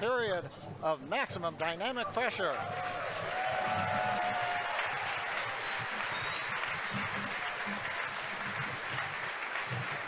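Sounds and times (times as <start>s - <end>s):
crowd applauding: 2.1s - 10.0s.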